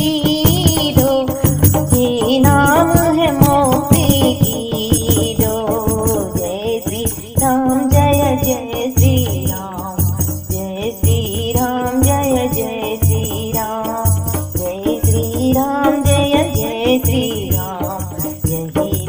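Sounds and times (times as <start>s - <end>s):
drum beats: 0.0s - 19.0s
jingling rattling percussion: 0.0s - 19.0s.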